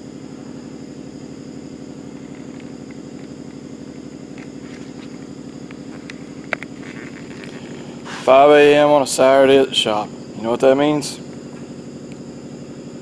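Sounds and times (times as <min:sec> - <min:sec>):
machine motor humming: 0:00.0 - 0:13.0.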